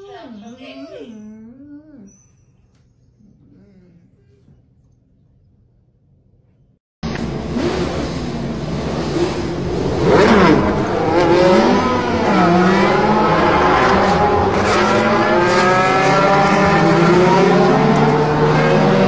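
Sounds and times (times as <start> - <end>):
race car engine revving: 7.0 - 19.0.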